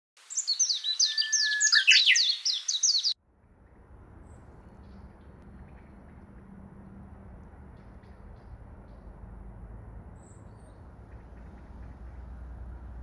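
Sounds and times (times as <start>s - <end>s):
small birds chirping: 0.2s - 3.2s
bird whistle: 0.3s - 3.2s
low hum: 3.2s - 13.0s.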